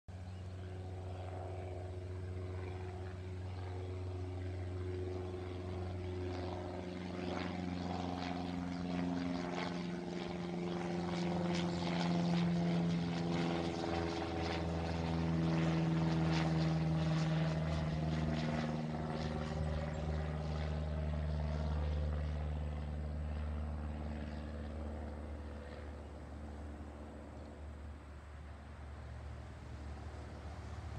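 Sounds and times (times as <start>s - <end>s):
propeller plane flying over: 0.1s - 30.9s.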